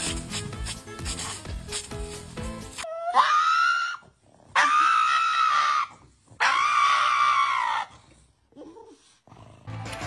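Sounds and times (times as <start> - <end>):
dog screaming: 2.8 - 8.0.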